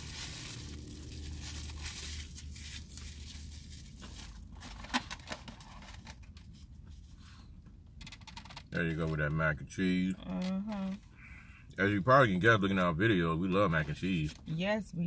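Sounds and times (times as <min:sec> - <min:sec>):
packaging and plastic fork crinkling: 0:00.0 - 0:06.6.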